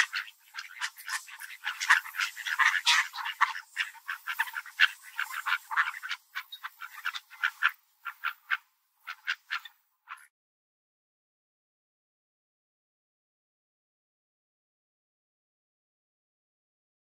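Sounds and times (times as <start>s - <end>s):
ducks quacking: 0.0s - 10.3s.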